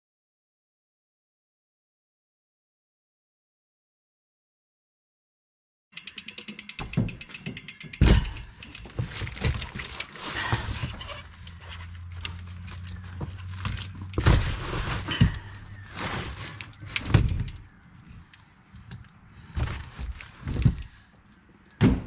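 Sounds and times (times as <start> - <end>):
scraping and rattling: 6.3 - 18.3
bike knocking against car boot: 6.8 - 11.1.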